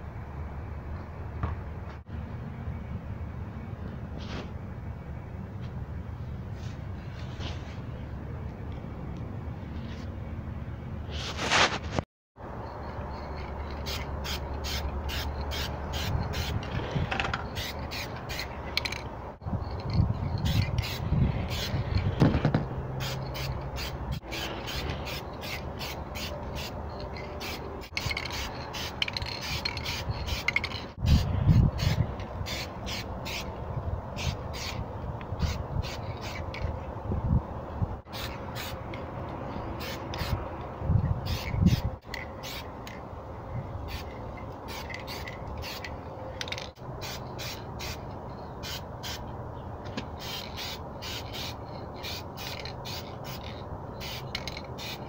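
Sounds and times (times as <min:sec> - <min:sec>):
spray paint can hissing: 0:13.6 - 0:16.7, 0:17.5 - 0:19.0, 0:19.8 - 0:22.3, 0:23.0 - 0:33.5, 0:34.2 - 0:34.8, 0:35.4 - 0:36.7, 0:38.1 - 0:38.8, 0:39.8 - 0:40.4, 0:41.2 - 0:43.0, 0:43.9 - 0:49.2, 0:50.2 - 0:55.0.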